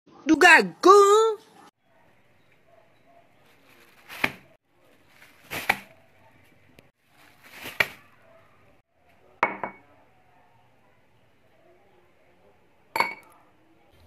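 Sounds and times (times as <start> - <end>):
tableware knocking on table: 9.4 - 9.8, 13.0 - 13.3.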